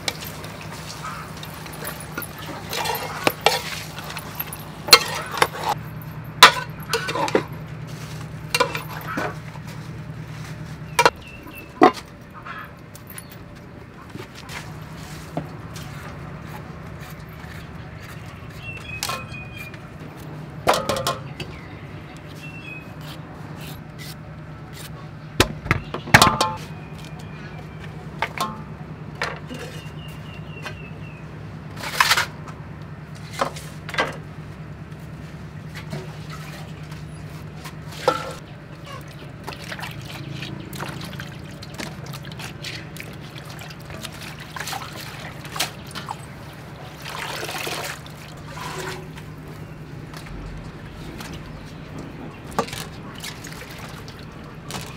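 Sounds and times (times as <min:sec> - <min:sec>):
water sloshing in metal basin: 0:00.0 - 0:13.4, 0:14.4 - 0:21.7, 0:25.4 - 0:30.4, 0:35.5 - 0:54.9
metal bowls clinking on wooden table: 0:01.7 - 0:07.7, 0:08.5 - 0:09.4, 0:20.7 - 0:21.4.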